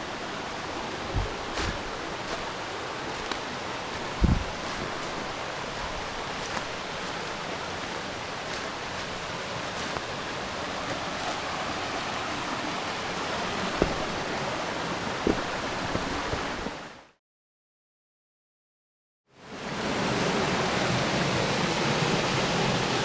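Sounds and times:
brook flowing over stones: 0.0 - 17.0.

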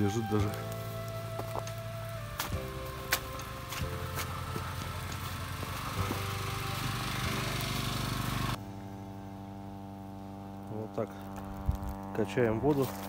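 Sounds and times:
small engine running: 0.0 - 13.0.

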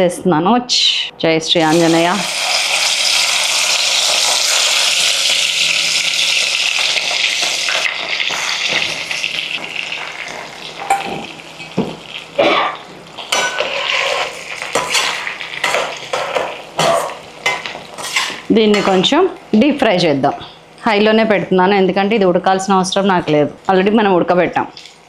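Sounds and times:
vegetables sizzling in hot oil: 1.6 - 20.0.

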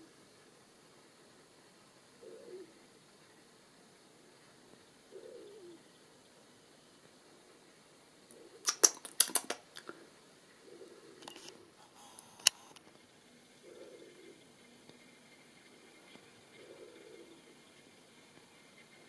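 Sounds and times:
wood pigeon cooing: 0.0 - 0.3, 2.1 - 3.0, 4.3 - 5.9, 8.3 - 12.1, 13.3 - 17.6
sharp clicks and knocks: 8.7 - 10.0.

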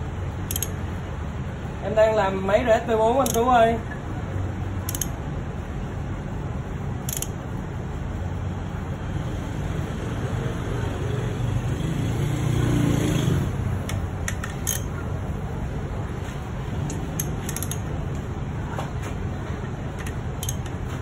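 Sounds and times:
steady low rumble: 0.0 - 10.6, 13.4 - 21.0
hand tools clicking on metal: 0.5 - 0.8, 3.2 - 3.5, 4.9 - 5.1, 7.1 - 7.4, 13.8 - 15.0, 16.8 - 18.2, 20.0 - 20.8.

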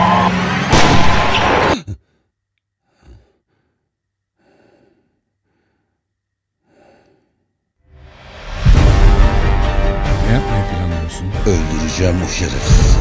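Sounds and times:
man breathing heavily: 1.9 - 7.8.

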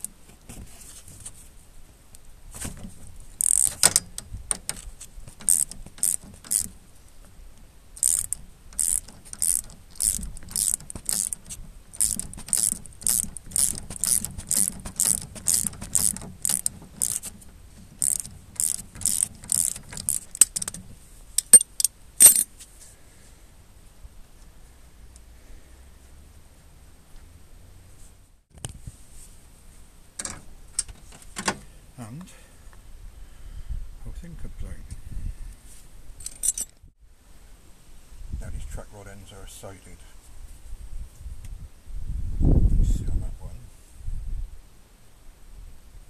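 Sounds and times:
ratchet clicking: 3.4 - 6.8, 8.0 - 20.8, 21.4 - 22.4
sharp metallic clinks: 21.4 - 22.5, 36.2 - 36.8.

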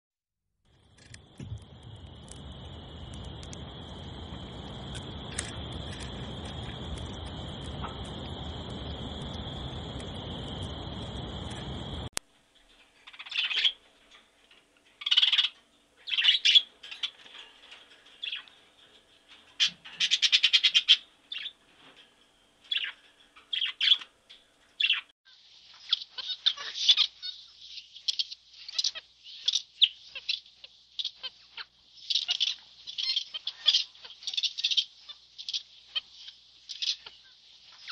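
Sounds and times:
parrots calling: 13.0 - 13.8, 15.0 - 18.6, 19.3 - 21.9, 22.6 - 24.1, 25.8 - 37.9.

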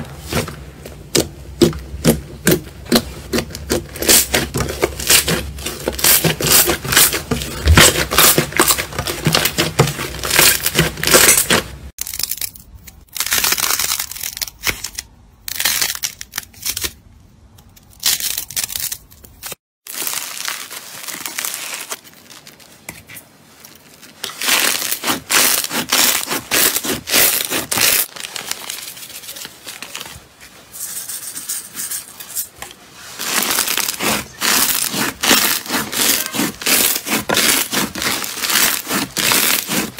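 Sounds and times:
slime squishing: 33.0 - 39.9.

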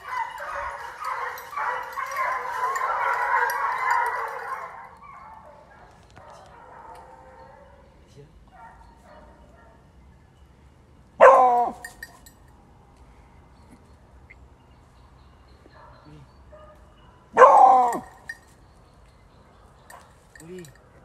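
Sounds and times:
hound barking: 0.0 - 9.9, 11.2 - 12.2, 15.7 - 18.3.

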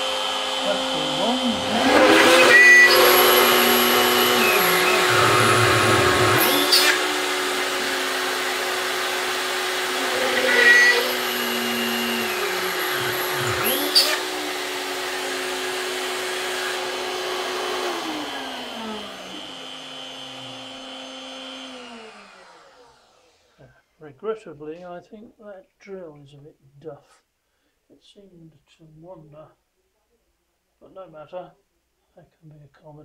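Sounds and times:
router spindle drilling metal: 0.0 - 23.5
shop vacuum running: 0.0 - 23.6.

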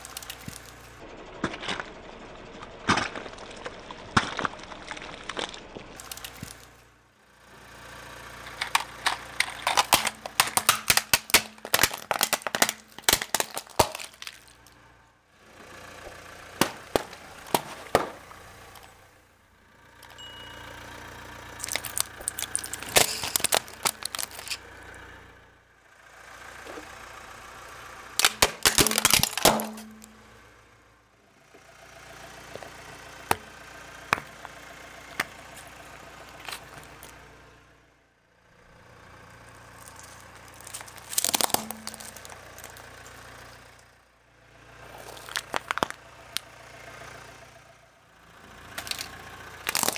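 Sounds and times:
pencils snapping and splintering: 0.0 - 0.8, 4.2 - 6.7, 8.5 - 14.8, 16.6 - 18.9, 21.6 - 24.6, 28.2 - 30.1, 39.8 - 42.8, 45.0 - 46.0, 48.8 - 49.9
objects cracking under car tyre: 0.0 - 6.8, 8.2 - 14.9, 15.6 - 19.1, 21.5 - 25.2, 28.2 - 30.3, 32.5 - 37.2, 39.5 - 43.8, 44.8 - 46.5, 48.7 - 49.9
car engine idling: 0.0 - 49.9.

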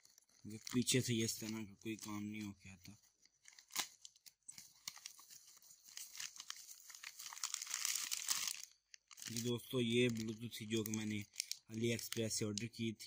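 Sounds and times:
envelope tearing and crinkling: 3.1 - 12.2.

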